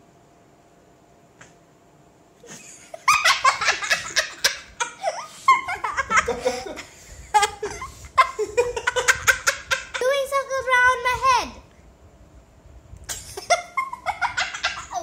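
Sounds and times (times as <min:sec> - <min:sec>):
man laughing: 0:02.4 - 0:10.1
child laughing: 0:02.4 - 0:11.1, 0:13.1 - 0:15.0.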